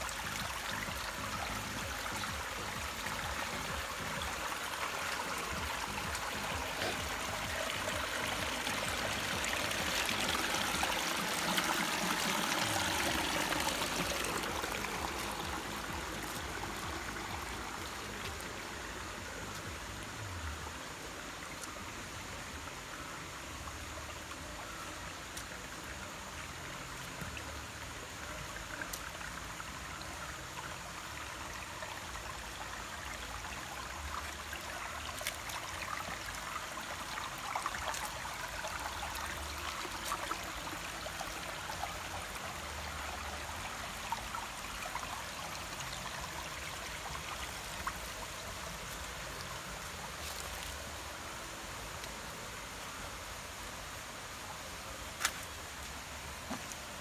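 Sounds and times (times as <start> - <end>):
stream running over rocks: 0.0 - 57.0
small water splashes: 32.0 - 51.0.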